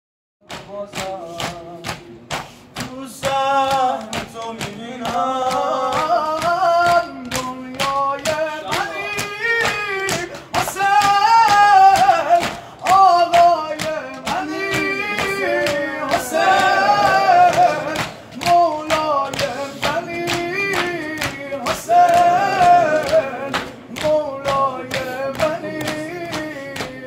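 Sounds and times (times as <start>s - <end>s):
men slapping their chests: 0.5s - 27.0s
man chanting a lament: 0.6s - 27.0s.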